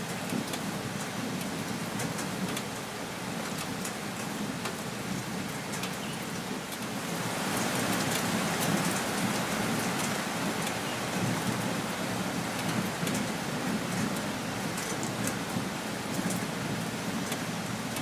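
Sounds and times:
rain falling on trees: 0.0s - 18.0s
raindrops ticking: 12.5s - 18.0s.

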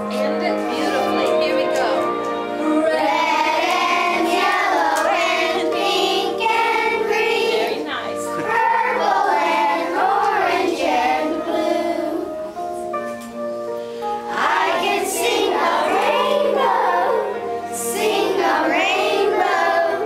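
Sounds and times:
accompaniment music: 0.0s - 20.0s
children singing in unison: 2.6s - 7.8s, 8.4s - 12.6s, 14.3s - 20.0s.

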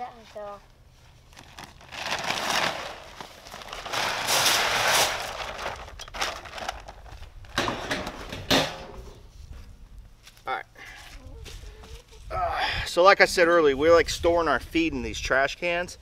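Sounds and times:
paper bag rustling and scraping: 0.3s - 8.2s.

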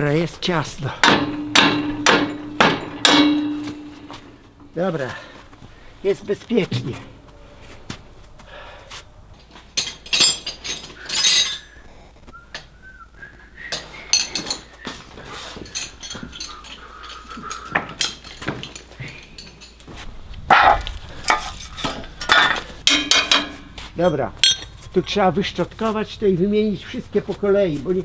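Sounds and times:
scattered knocks: 1.0s - 4.4s.

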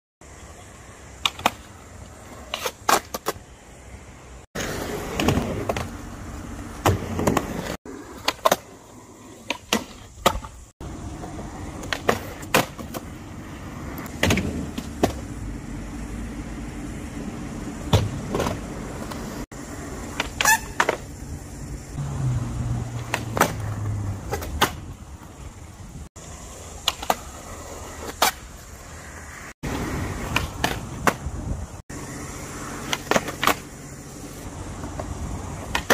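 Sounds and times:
skateboard wheels rolling on concrete: 0.2s - 35.9s
skateboard clacks: 1.1s - 3.5s, 6.7s - 13.2s, 20.0s - 21.1s, 23.0s - 25.6s, 26.2s - 28.7s, 29.6s - 31.4s, 32.8s - 35.9s.

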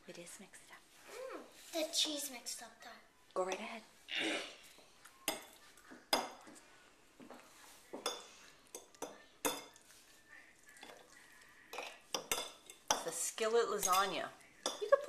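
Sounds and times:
fork clinking on ceramic plate: 11.7s - 13.1s.

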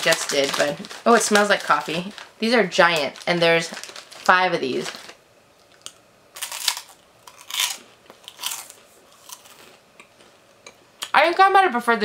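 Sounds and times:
crunchy rice cake chewing: 5.6s - 10.4s.

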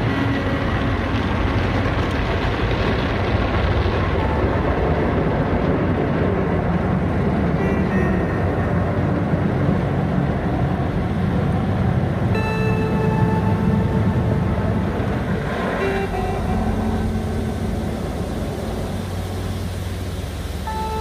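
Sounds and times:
car wash water spray rushing: 14.7s - 21.0s.

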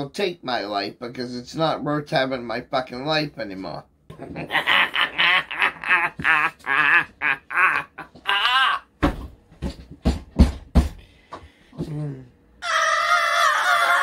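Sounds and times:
man vocalizing in pitched bursts: 5.9s - 8.9s.

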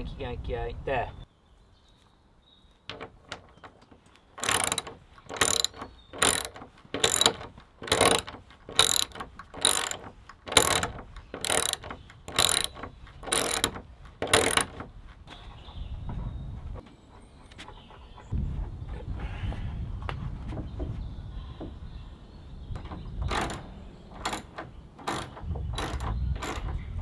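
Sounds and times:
ratchet clicking: 4.4s - 14.9s.

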